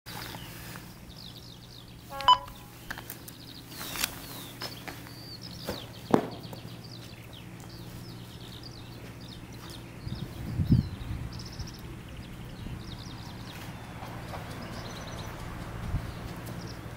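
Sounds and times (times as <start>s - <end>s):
low steady hum: 0.1s - 13.4s
songbirds chirping and singing: 0.1s - 16.9s
loud beep-like tone: 2.1s - 2.6s.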